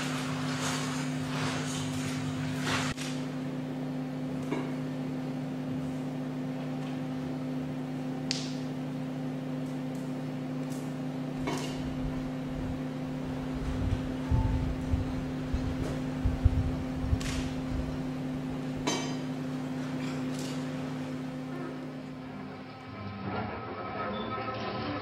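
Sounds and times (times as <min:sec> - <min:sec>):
machine hum with low tones: 0:00.0 - 0:25.0
low rumbling: 0:11.8 - 0:18.8.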